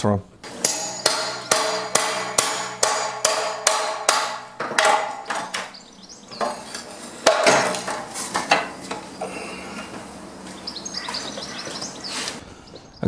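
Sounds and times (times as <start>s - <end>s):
hammer striking metal bar: 0.5s - 5.8s, 6.4s - 8.7s.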